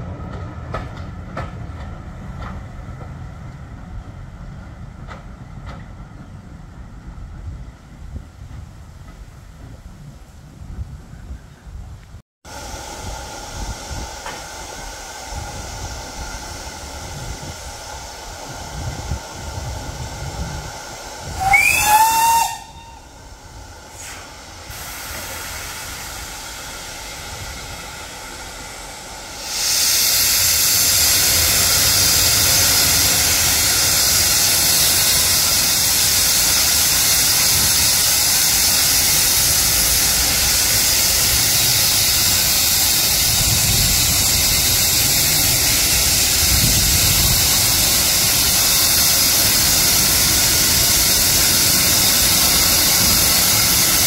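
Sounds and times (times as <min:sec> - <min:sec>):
steam hissing: 0:12.5 - 0:54.0
steam locomotive whistle: 0:21.3 - 0:23.4.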